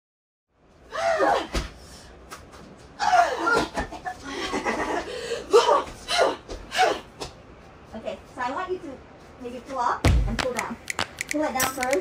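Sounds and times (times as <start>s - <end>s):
women laughing: 3.0s - 5.8s.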